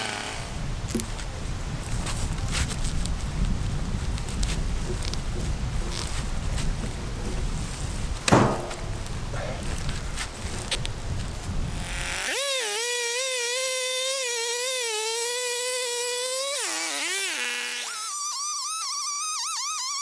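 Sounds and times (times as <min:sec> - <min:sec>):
rough knocking and rustling: 0:04.3 - 0:10.3.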